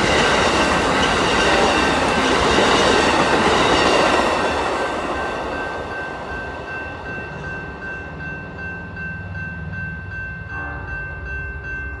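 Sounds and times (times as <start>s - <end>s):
train wheels rumbling: 0.0s - 12.0s
train horn: 10.5s - 11.3s.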